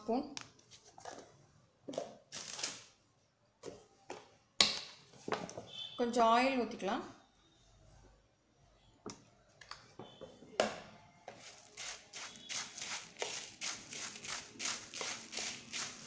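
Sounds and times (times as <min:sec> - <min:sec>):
spoon stirring dry puffed rice: 0:11.3 - 0:16.0.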